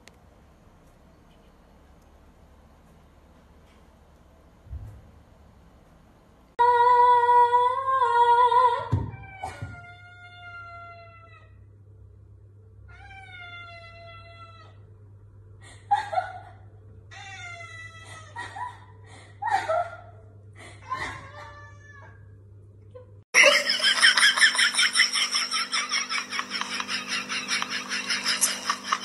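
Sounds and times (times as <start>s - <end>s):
cat meowing: 12.9s - 14.8s, 21.1s - 22.2s.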